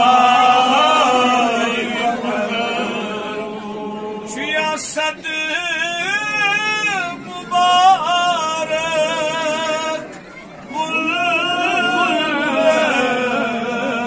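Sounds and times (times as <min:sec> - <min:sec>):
man chanting devotional song: 0:00.0 - 0:10.1.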